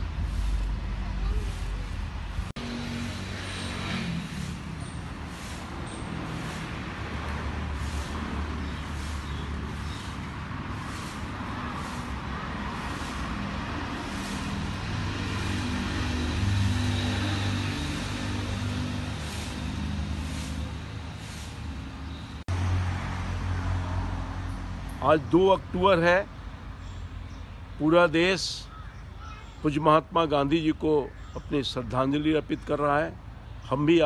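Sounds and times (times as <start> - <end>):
broom swishing across leaves: 0.0 - 22.4.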